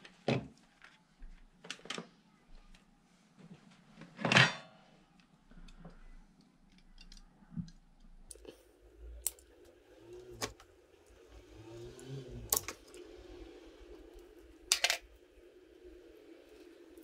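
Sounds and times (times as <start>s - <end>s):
faint steady hum: 0.0s - 17.0s
small metal parts clicking: 6.7s - 7.3s, 14.7s - 15.1s.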